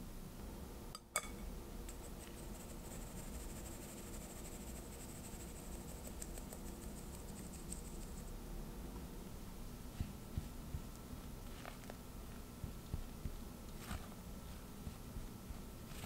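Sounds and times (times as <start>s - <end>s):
flour sifting through sieve: 1.9s - 8.3s.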